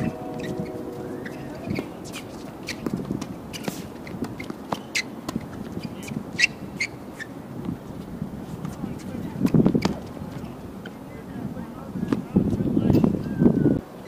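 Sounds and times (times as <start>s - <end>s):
shoes squeaking on hard court: 2.0s - 7.3s.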